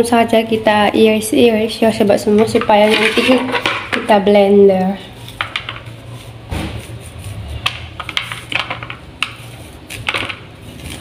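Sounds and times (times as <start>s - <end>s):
knife scraping corn cob: 6.0s - 8.5s, 9.2s - 11.0s
kernels dropping onto plastic plate: 8.0s - 9.4s.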